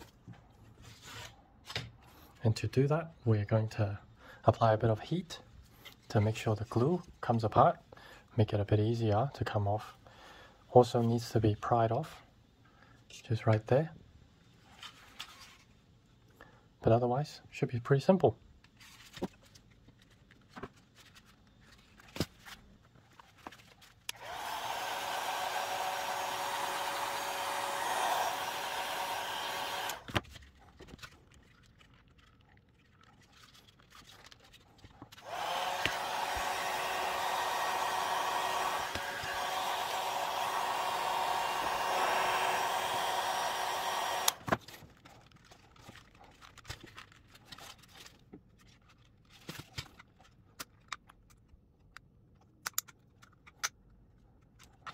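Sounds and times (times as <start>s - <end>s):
hot-air blower running: 24.1s - 30.1s, 35.2s - 44.6s
plastic clicks and prying taps: 50.6s - 53.8s.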